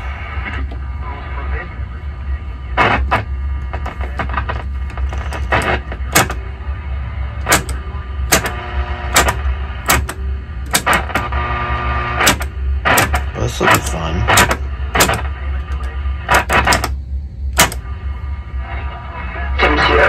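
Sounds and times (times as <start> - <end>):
static crackles: 0.0 - 6.4, 8.3 - 10.1, 10.7 - 16.9
radio speaker low hum: 0.0 - 20.0.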